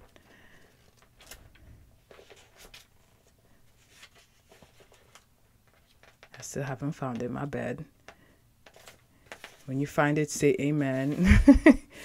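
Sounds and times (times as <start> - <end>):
faint handling clicks and rustles: 0.0 - 6.6, 8.0 - 9.7.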